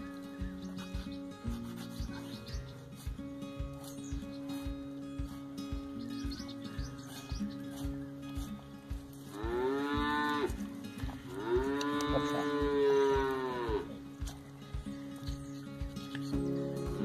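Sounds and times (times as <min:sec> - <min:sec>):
soft thumping beat: 0:00.0 - 0:17.0
cow mooing: 0:09.3 - 0:10.6, 0:11.2 - 0:14.0.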